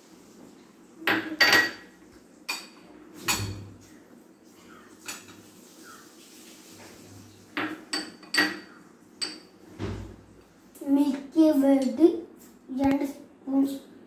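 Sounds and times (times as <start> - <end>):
bowls clinking against glass bowl: 1.1 - 1.9, 7.6 - 9.5.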